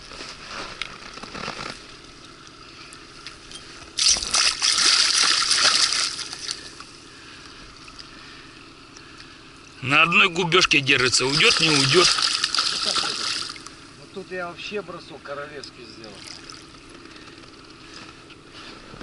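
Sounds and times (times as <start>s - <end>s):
fish splashing in water: 3.9s - 7.0s, 11.1s - 13.9s, 16.2s - 16.8s.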